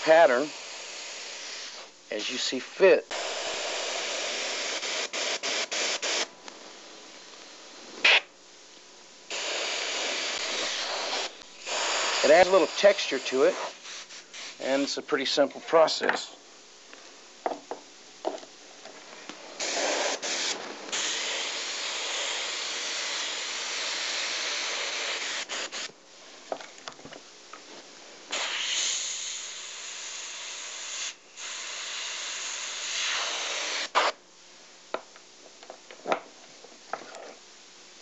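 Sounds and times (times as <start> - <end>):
airbrush spraying paint: 0.0 - 6.3, 8.0 - 8.3, 9.3 - 15.0, 19.6 - 26.0, 28.3 - 34.2.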